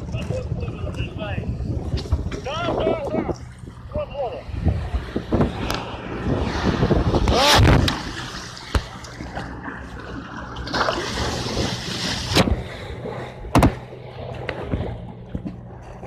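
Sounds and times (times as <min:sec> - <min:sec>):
low engine hum: 0:00.0 - 0:16.0
water splashing along hull: 0:00.0 - 0:16.0
sharp knocks: 0:13.5 - 0:13.9.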